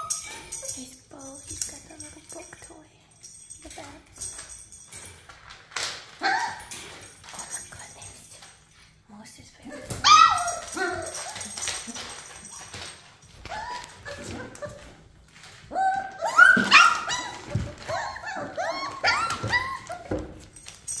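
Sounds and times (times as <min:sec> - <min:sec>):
puppies whining and yipping: 0:00.0 - 0:00.8, 0:06.2 - 0:06.9, 0:09.9 - 0:21.0.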